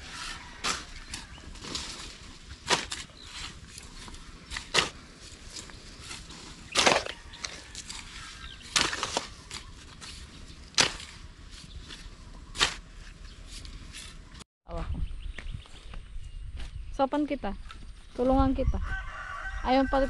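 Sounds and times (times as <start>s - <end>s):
hoes chopping and scraping soil: 0.0s - 14.4s.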